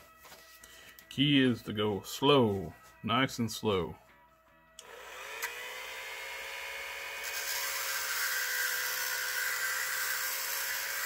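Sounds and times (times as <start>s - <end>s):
rotary tool whine: 4.8s - 11.0s.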